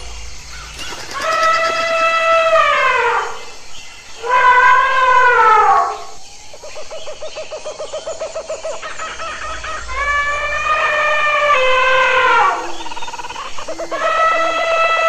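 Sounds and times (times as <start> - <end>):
elephants rattling call: 0.6 - 3.4
elephants trumpeting: 9.9 - 12.8.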